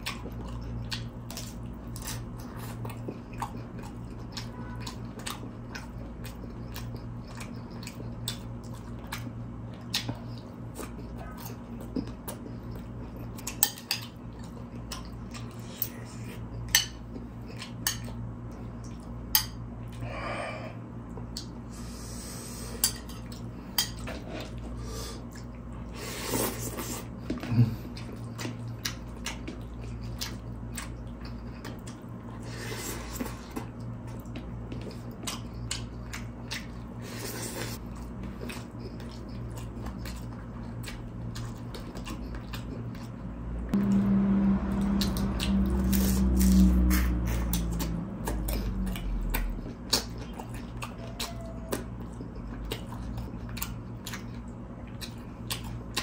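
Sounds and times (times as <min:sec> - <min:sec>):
crunching and chewing food: 0:00.0 - 0:56.0
steady low hum: 0:00.0 - 0:56.0
louder low steady sound: 0:43.7 - 0:49.1.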